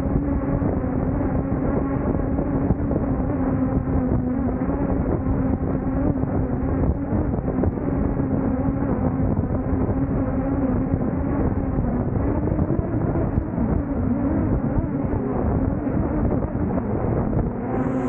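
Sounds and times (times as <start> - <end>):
drone propellers buzzing: 17.5 - 18.0.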